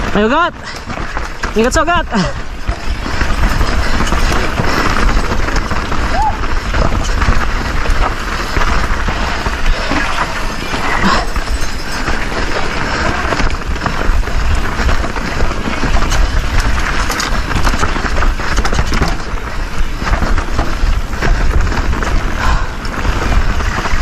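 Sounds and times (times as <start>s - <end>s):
bike rattling and clicking: 0.0s - 24.0s
tyres on dirt: 0.0s - 24.0s
wind buffeting microphone: 0.0s - 24.0s.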